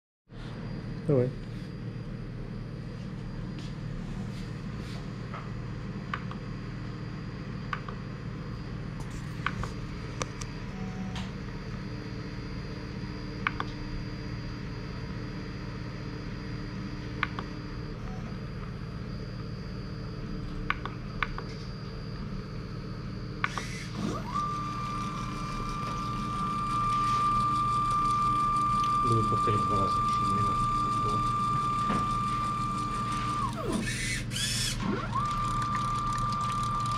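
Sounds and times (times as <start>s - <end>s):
steady low hum: 0.3s - 36.9s
pump motor whining: 23.2s - 36.9s.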